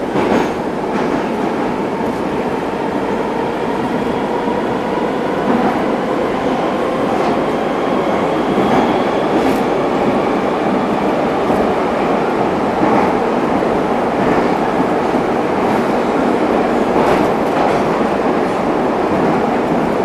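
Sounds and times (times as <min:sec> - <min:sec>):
train wheels rumbling on rails: 0:00.0 - 0:20.0.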